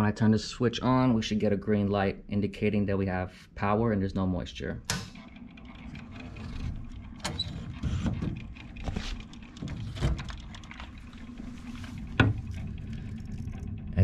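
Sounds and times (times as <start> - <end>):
handling noise rumble: 5.6 - 14.0.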